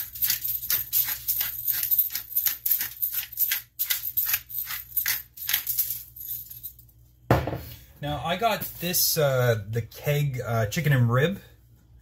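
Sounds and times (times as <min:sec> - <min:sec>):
pepper mill grinding: 0:00.0 - 0:06.3.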